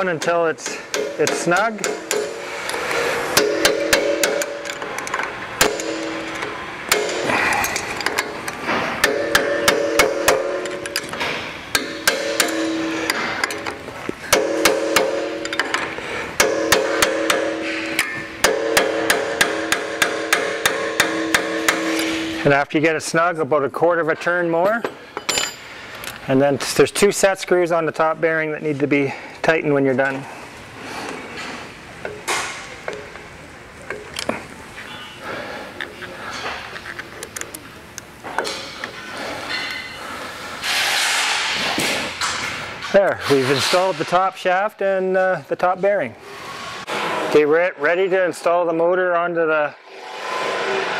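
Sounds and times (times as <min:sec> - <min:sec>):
steel housing ringing: 0:00.0 - 0:22.7
hammer striking metal punch: 0:00.2 - 0:22.4.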